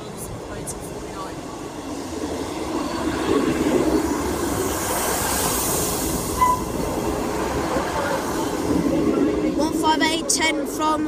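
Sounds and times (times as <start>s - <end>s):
train engines running: 0.0s - 11.0s
train wheels rumbling on rails: 0.0s - 11.0s
train hiss: 2.7s - 9.5s
short high squeal: 6.3s - 6.8s.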